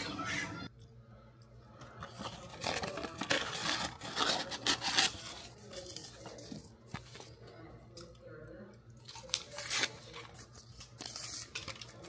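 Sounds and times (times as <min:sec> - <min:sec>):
paper and cardboard rustling: 0:02.0 - 0:07.3.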